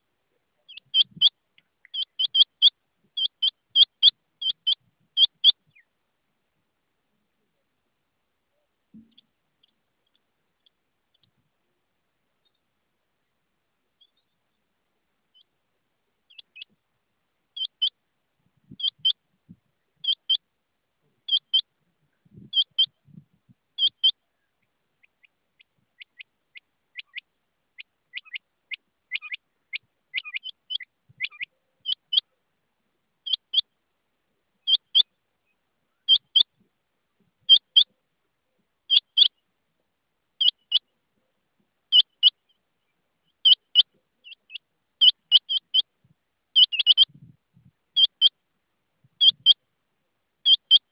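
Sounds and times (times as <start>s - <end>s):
quail calling: 0.6s - 5.8s, 17.6s - 18.0s, 18.7s - 19.2s, 19.9s - 20.4s, 21.2s - 21.7s, 22.4s - 23.0s, 23.8s - 24.2s, 25.0s - 32.4s, 33.2s - 33.7s, 34.6s - 35.1s, 35.9s - 36.5s, 37.4s - 37.9s, 38.9s - 39.4s, 40.4s - 40.9s, 41.9s - 42.6s, 43.3s - 45.9s, 46.5s - 47.3s, 48.0s - 48.4s, 49.2s - 49.6s, 50.4s - 50.9s.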